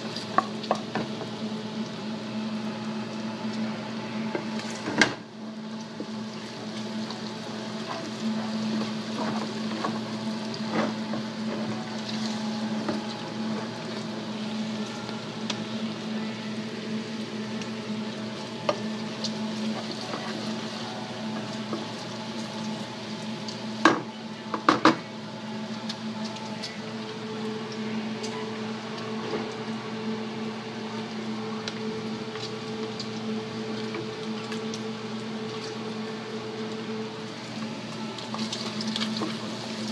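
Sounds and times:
bacon sizzling in a frying pan: 0.0 - 24.1
steady low hum: 0.0 - 39.9.

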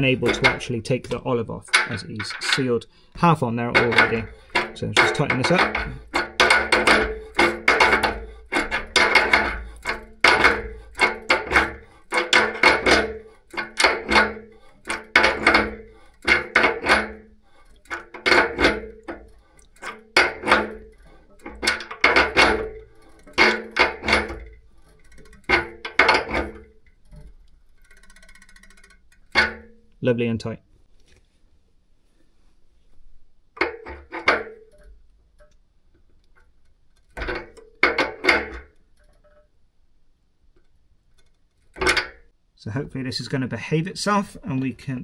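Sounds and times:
spanner clicking and clinking: 0.0 - 30.0, 40.5 - 42.3.

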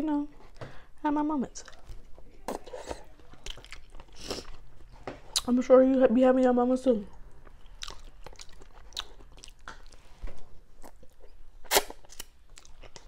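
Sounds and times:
wet chewing: 1.6 - 5.5, 7.3 - 13.0.

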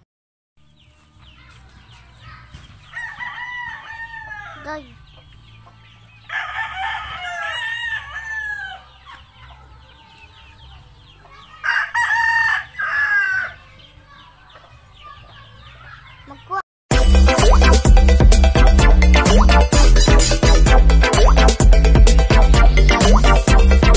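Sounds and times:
rooster crowing: 2.9 - 4.8, 6.3 - 9.0, 11.5 - 13.6.

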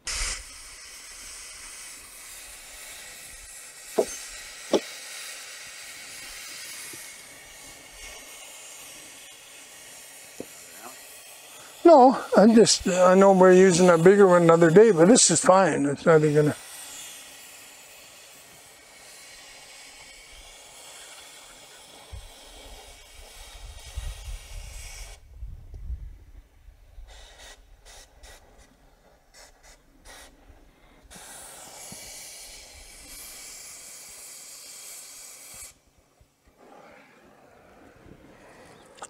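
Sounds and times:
cutting torch hissing: 0.0 - 25.2, 31.0 - 35.8
crackles: 36.4 - 39.0.

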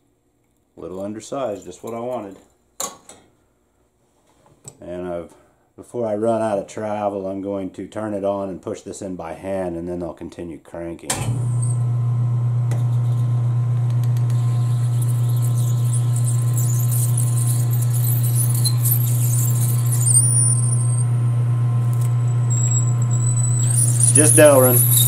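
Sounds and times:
lathe humming: 11.8 - 25.0
drill squealing in plastic: 14.2 - 21.2, 21.9 - 25.0.

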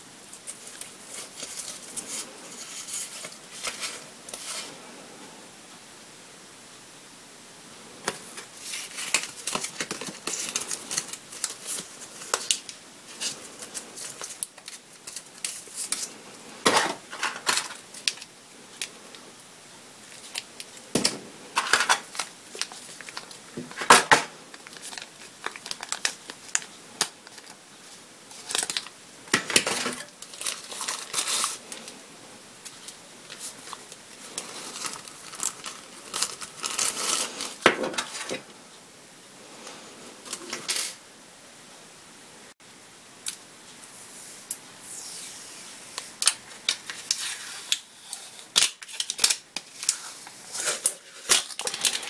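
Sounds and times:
paper and plastic crinkling: 0.3 - 4.8, 8.0 - 19.2, 20.0 - 32.0, 32.6 - 38.5, 46.0 - 52.0
plastic film being pulled off: 29.6 - 31.9, 32.6 - 38.4, 46.0 - 52.0.

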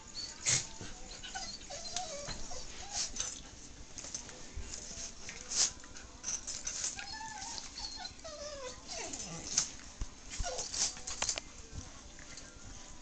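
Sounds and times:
dogs scuffling and rustling: 0.3 - 13.0
dog whining squeals: 1.1 - 3.1, 7.0 - 9.3, 10.4 - 10.9.

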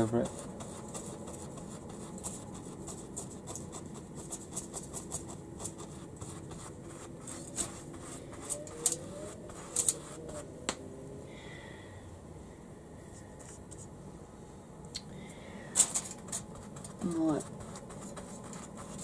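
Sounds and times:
paintbrush scratching and dabbing: 0.0 - 10.6, 16.0 - 19.0.

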